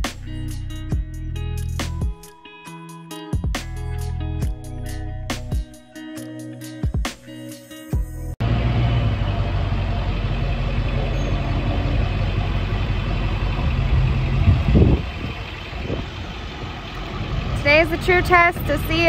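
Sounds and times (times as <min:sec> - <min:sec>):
vehicle engine idling: 0:08.4 - 0:19.0
wind buffeting microphone: 0:11.7 - 0:19.0.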